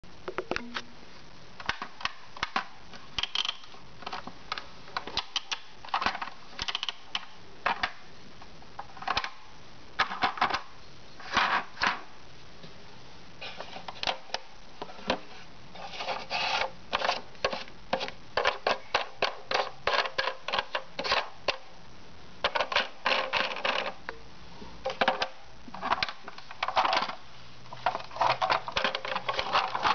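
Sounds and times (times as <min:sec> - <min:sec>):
plastic toy clicking and rattling: 0:01.6 - 0:04.2, 0:05.0 - 0:08.0, 0:16.9 - 0:21.6, 0:22.4 - 0:24.0, 0:27.8 - 0:29.9.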